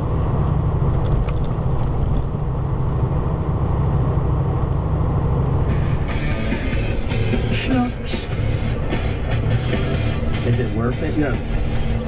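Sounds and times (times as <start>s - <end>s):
diesel truck engine rumble: 0.0s - 12.0s
music: 5.7s - 12.0s.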